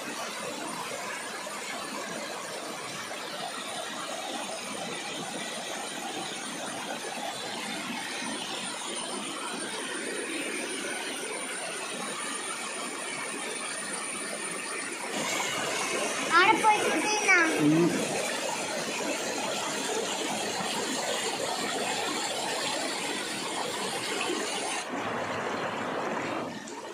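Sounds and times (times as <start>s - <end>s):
waterfall cascading over rocks: 1.8s - 26.4s.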